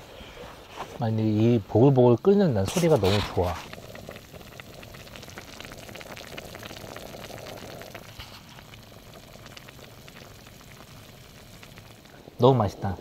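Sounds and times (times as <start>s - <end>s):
broth bubbling in a pot: 0.0s - 13.0s.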